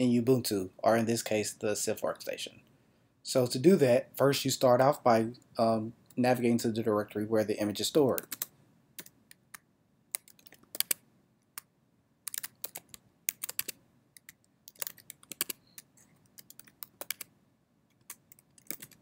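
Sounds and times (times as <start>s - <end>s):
keyboard key clicks: 12.3s - 17.3s.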